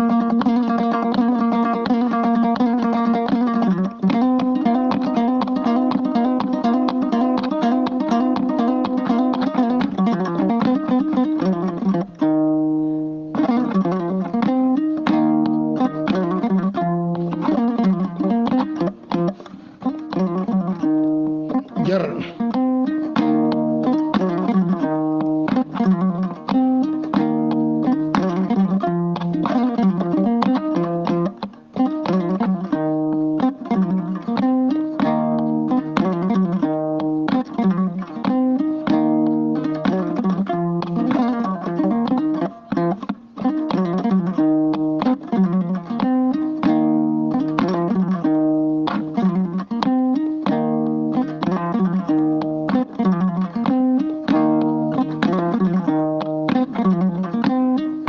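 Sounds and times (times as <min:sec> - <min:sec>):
plucked lute melody: 0:00.0 - 0:58.0.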